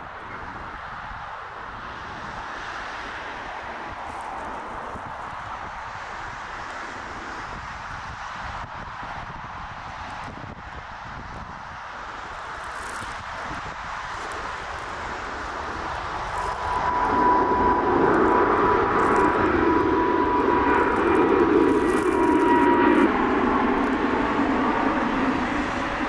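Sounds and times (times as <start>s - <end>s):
jet engines at takeoff: 0.0s - 26.0s.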